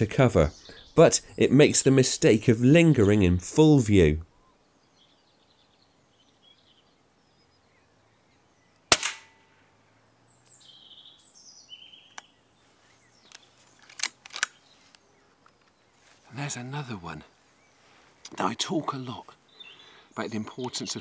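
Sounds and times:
faint birdsong: 0.0s - 21.0s
air rifle shot: 8.9s - 9.5s
sharp clicks: 12.1s - 12.3s, 13.2s - 15.8s.

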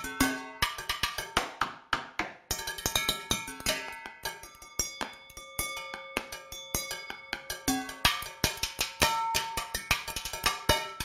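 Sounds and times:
sticks striking metal pot: 0.0s - 11.0s
metallic ringing tones: 2.5s - 9.9s.

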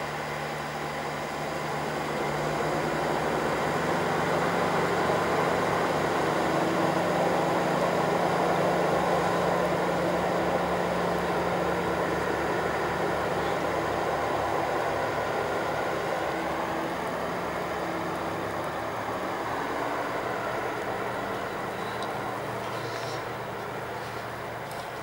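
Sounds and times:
train running on track: 0.0s - 25.0s.

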